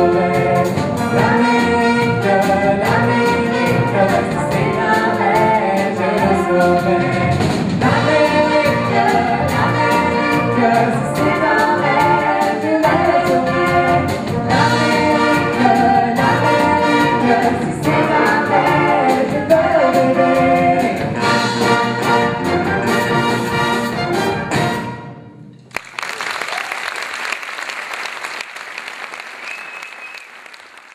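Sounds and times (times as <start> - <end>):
steady drum beat: 0.0 - 24.8
music ensemble with singing: 0.0 - 25.9
audience applause: 25.7 - 30.9.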